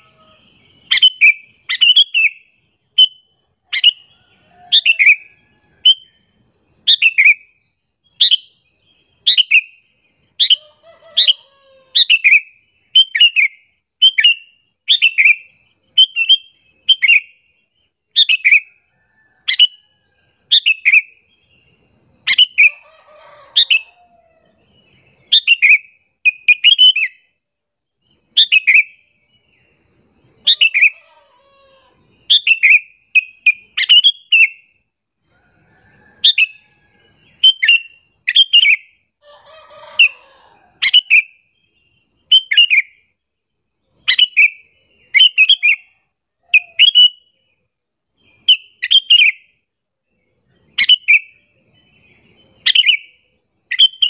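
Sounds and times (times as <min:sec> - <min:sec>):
bulbul calling: 0:00.0 - 0:06.1, 0:22.2 - 0:24.0, 0:25.2 - 0:27.2, 0:30.4 - 0:34.7, 0:44.0 - 0:47.3.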